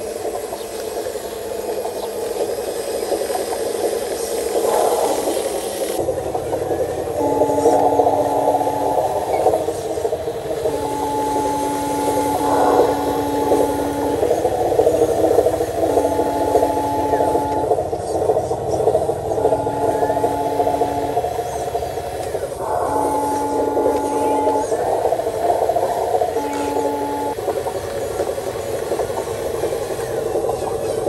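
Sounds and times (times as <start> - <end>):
steady two-note tone: 6.0 - 18.0, 18.8 - 27.6.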